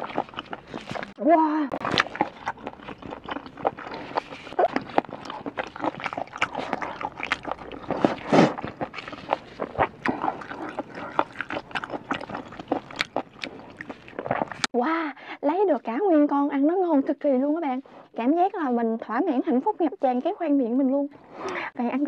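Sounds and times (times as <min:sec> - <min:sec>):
wet chewing: 0:00.0 - 0:14.7.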